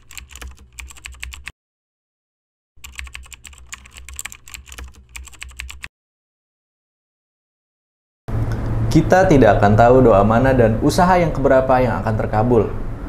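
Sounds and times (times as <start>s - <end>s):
keyboard key clicks: 0.0s - 1.5s, 2.8s - 5.9s.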